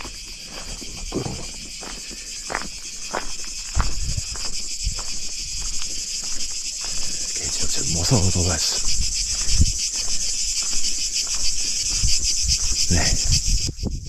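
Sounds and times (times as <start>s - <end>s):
footsteps walking: 0.0s - 13.5s
insects chorus: 0.0s - 14.0s.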